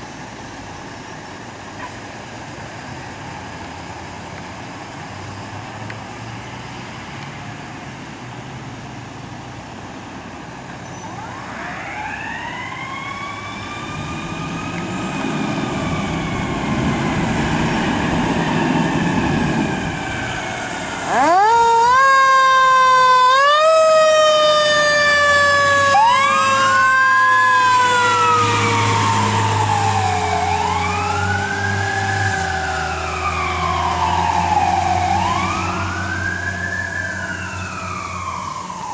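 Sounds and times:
distant siren wailing: 0:11.0 - 0:38.9
fast wailing siren: 0:11.1 - 0:38.9
fire engine siren winding: 0:20.0 - 0:38.9.

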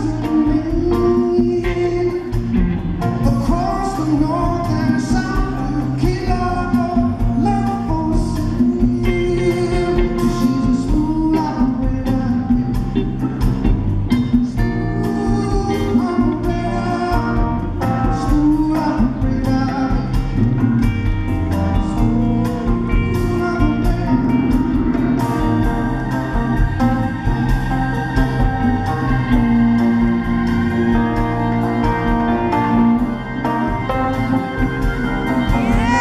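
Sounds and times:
man singing lead: 0:00.0 - 0:13.2, 0:14.4 - 0:20.9, 0:21.8 - 0:27.2, 0:35.4 - 0:36.0
live band music: 0:00.0 - 0:36.0.

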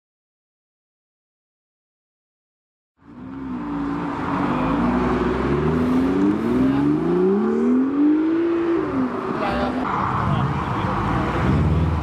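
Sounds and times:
car engine accelerating through gears: 0:03.2 - 0:09.7.

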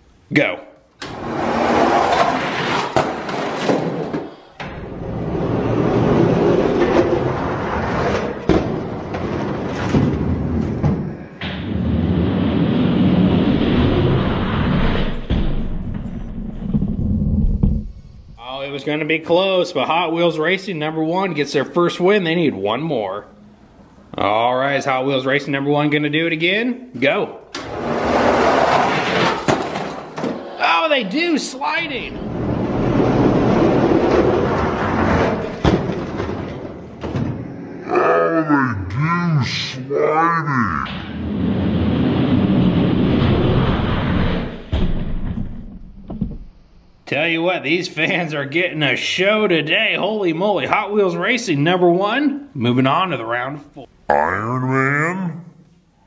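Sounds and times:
thumps: 0:01.0 - 0:18.4, 0:31.6 - 0:37.6, 0:40.9 - 0:47.0
toy trucks rolling down plastic track: 0:01.1 - 0:04.2, 0:27.6 - 0:30.4, 0:32.2 - 0:36.7.

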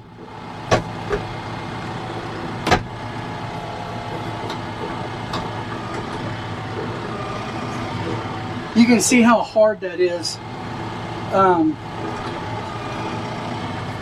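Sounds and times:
tractor engine running: 0:00.0 - 0:14.0.

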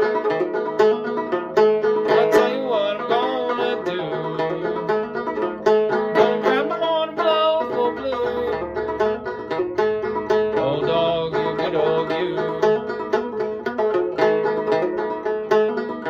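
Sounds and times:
banjo picking: 0:00.0 - 0:16.0.

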